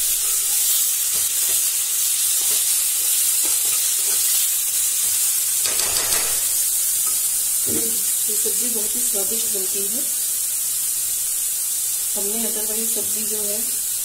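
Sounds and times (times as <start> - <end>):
food sizzling in hot oil: 0.0 - 14.0
spoon scraping pan: 5.6 - 8.1.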